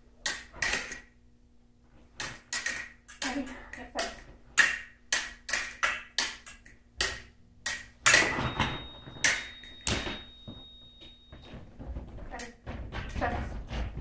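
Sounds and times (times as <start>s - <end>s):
fencing blades clashing: 0.2s - 1.2s, 2.1s - 11.2s.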